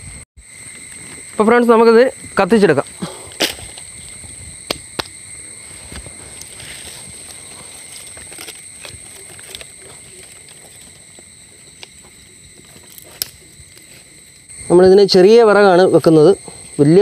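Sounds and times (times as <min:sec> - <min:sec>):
high-pitched insect drone: 0:00.0 - 0:17.0
firewood sticks knocking: 0:04.6 - 0:05.2, 0:05.8 - 0:14.2.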